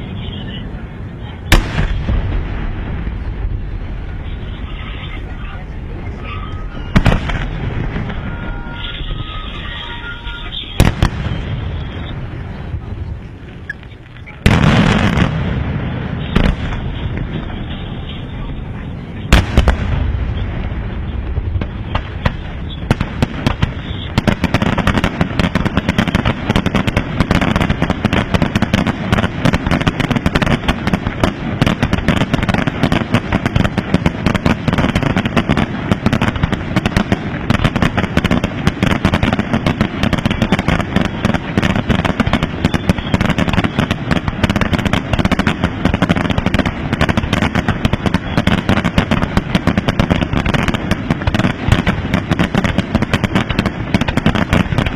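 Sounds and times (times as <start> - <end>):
fireworks bangs and pops: 0.0 - 54.9
deep firework thuds: 1.4 - 6.1, 6.7 - 9.9, 10.5 - 18.6, 19.3 - 54.9.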